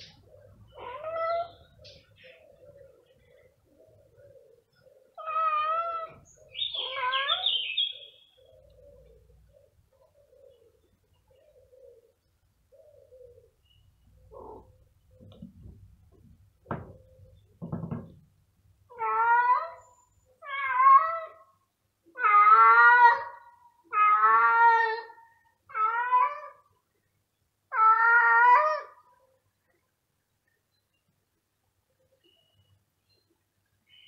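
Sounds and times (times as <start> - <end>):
cat meowing loudly: 6.8 - 7.5, 20.4 - 21.4, 22.2 - 26.6, 27.7 - 29.0
faint knocks: 15.2 - 18.3.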